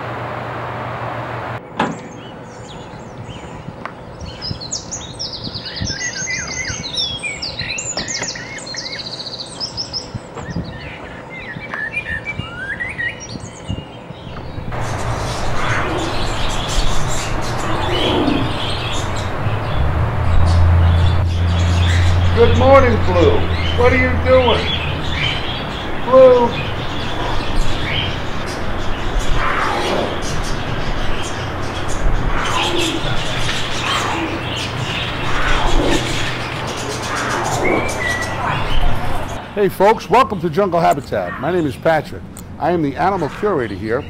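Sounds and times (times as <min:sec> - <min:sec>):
steady hum: 0:00.0 - 0:44.0
small birds chirping: 0:01.6 - 0:44.0
mixed background noise: 0:13.7 - 0:44.0.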